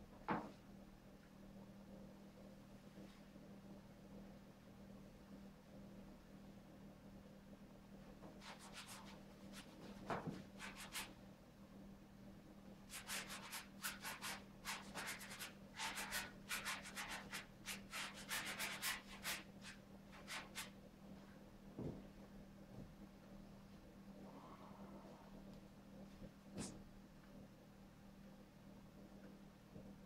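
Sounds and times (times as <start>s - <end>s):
paintbrush scrubbing canvas: 8.4s - 11.1s, 12.9s - 20.7s.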